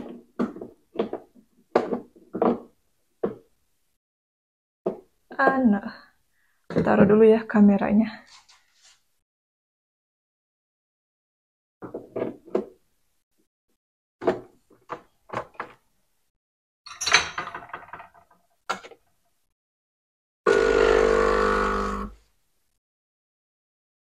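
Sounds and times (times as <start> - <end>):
espresso machine pump humming: 20.5 - 22.2.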